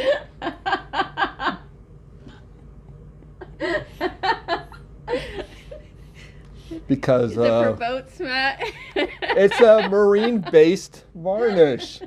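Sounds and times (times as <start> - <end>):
woman laughing: 0.0 - 1.7, 3.2 - 6.3, 7.4 - 12.0.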